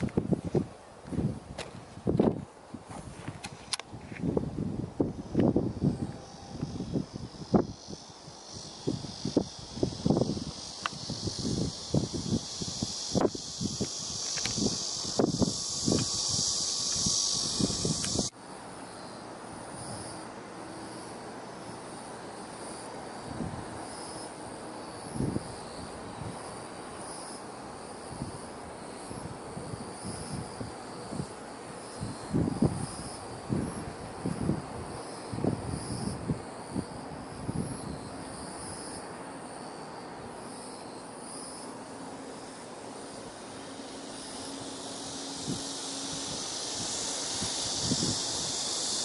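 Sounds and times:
soft hiss: 0.0 - 49.0
distant engine drone: 4.9 - 28.7, 35.9 - 49.0.

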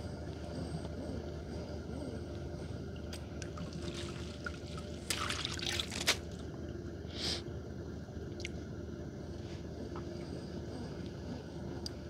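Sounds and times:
water splashing and trickling: 3.8 - 6.2.

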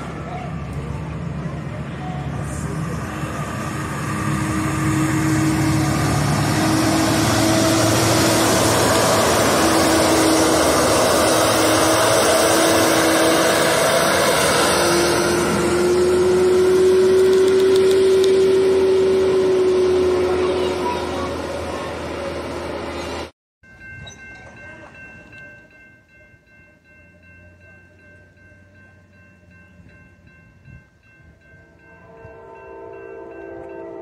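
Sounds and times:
diesel engine drone: 0.0 - 23.3.

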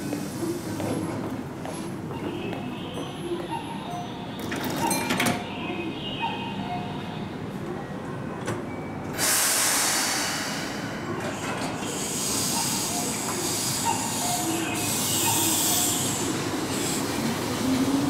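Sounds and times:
air hissing: 9.2 - 17.6.

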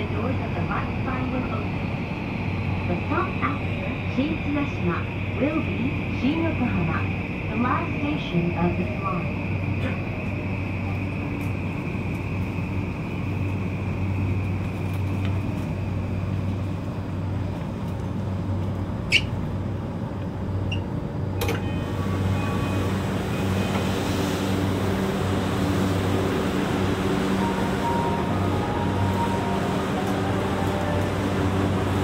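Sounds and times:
train cabin air conditioning hum: 0.0 - 32.0.

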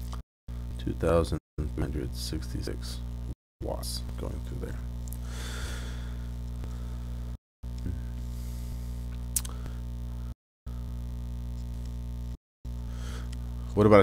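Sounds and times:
electrical mains hum: 0.0 - 14.0.

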